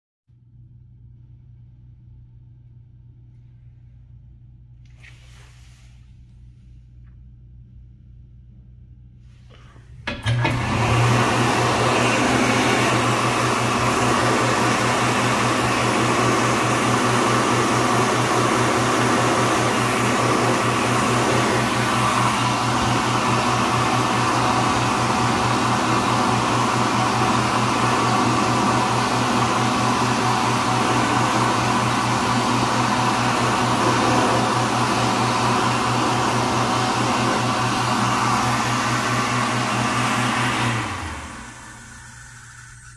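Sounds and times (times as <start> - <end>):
hand dryer blowing air: 9.3 - 42.9.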